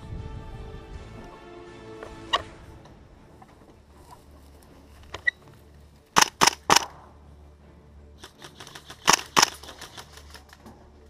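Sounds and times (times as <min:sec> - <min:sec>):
airsoft rifle shots: 0:06.2 - 0:07.1, 0:08.2 - 0:10.5.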